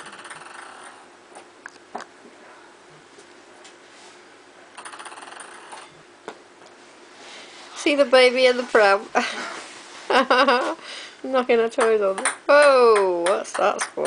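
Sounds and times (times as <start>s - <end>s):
ping pong ball bouncing: 11.8s - 14.0s.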